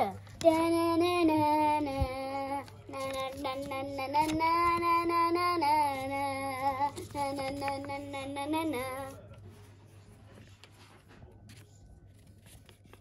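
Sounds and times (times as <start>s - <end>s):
child singing: 0.0s - 9.2s.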